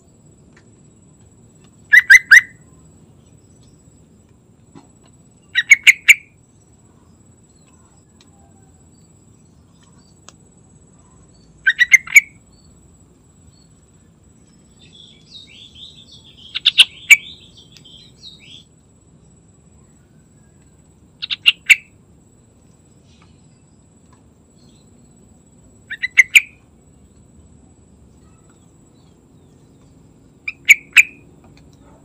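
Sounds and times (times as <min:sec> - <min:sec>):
bird singing loud notes: 0:01.8 - 0:02.8, 0:11.1 - 0:12.7, 0:13.5 - 0:18.7, 0:19.8 - 0:21.9, 0:25.8 - 0:27.2, 0:28.1 - 0:31.9
soft bird twittering: 0:01.9 - 0:02.7, 0:11.1 - 0:12.7, 0:14.4 - 0:18.7, 0:19.8 - 0:21.9, 0:25.9 - 0:26.6, 0:28.2 - 0:32.0.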